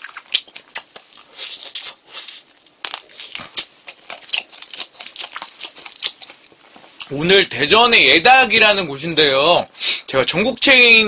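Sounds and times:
chewing and lip-smacking: 0.0s - 7.1s.

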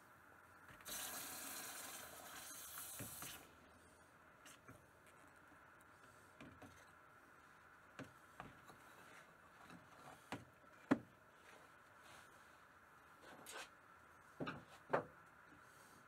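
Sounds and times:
faint knocks and clicks of tools: 4.4s - 7.1s, 7.9s - 12.2s, 13.2s - 15.7s.

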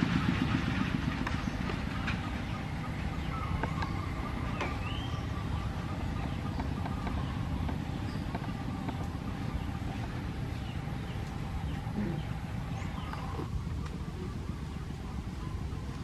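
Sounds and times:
low rumble: 0.0s - 16.0s
bird chirps and whistles: 3.2s - 5.7s.

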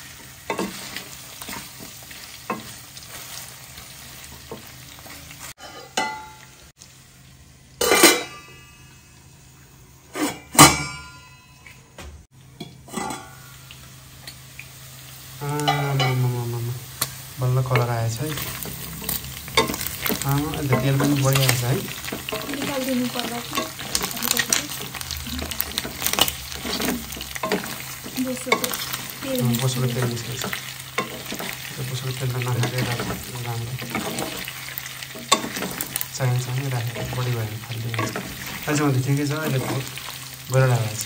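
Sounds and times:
meat sizzling in a wok: 0.0s - 10.7s, 12.6s - 41.0s
wooden spatula scraping a pan: 17.6s - 40.3s.

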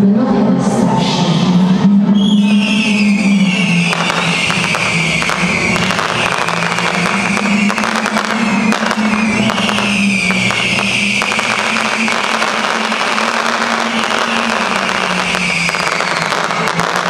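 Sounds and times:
steady low tone: 0.0s - 11.2s
fireworks crackling: 2.5s - 17.0s.

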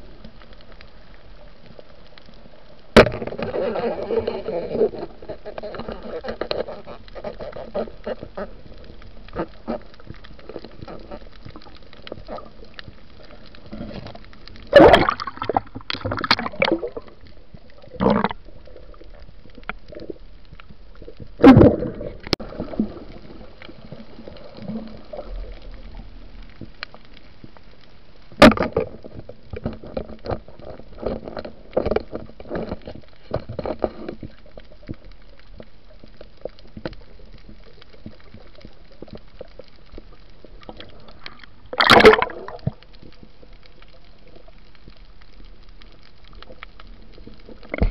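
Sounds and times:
underwater water gurgling: 0.0s - 47.9s
bursts of bubbles: 14.7s - 17.2s, 17.8s - 19.0s, 21.4s - 23.1s, 41.7s - 42.8s.

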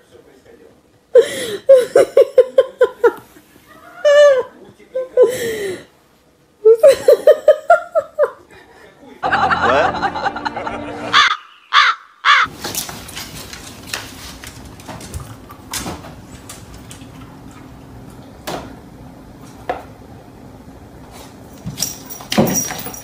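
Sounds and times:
harsh caw-like animal calls: 11.1s - 12.5s.

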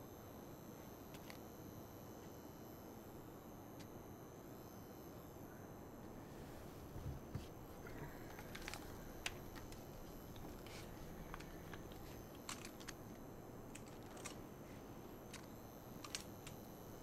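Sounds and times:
room hiss: 1.8s - 17.0s
rifle parts clicking and knocking: 8.0s - 14.4s, 15.3s - 16.6s.

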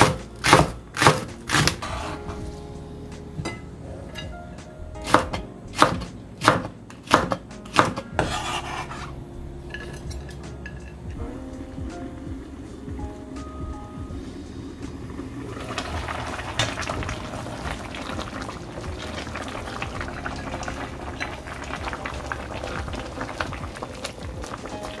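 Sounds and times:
soup bubbling at a boil: 14.2s - 25.0s.

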